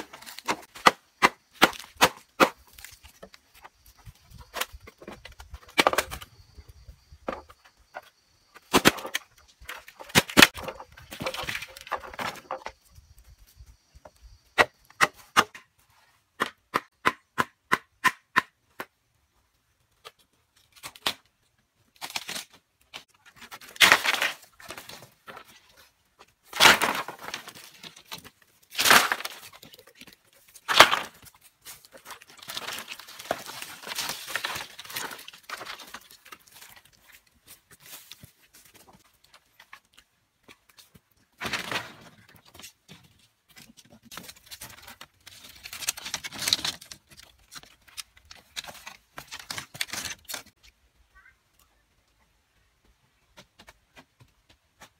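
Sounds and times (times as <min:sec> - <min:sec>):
bamboo cracking and splitting: 0:00.0 - 0:06.4, 0:08.6 - 0:12.8, 0:20.0 - 0:25.8, 0:26.4 - 0:40.0, 0:43.6 - 0:50.7
machete chopping bamboo: 0:00.2 - 0:02.9, 0:16.4 - 0:18.9.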